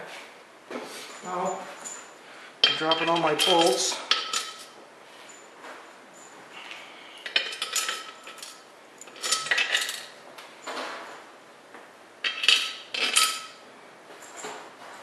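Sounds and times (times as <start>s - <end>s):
metal bolts clinking: 2.6s - 4.8s, 7.2s - 11.0s, 12.2s - 13.6s.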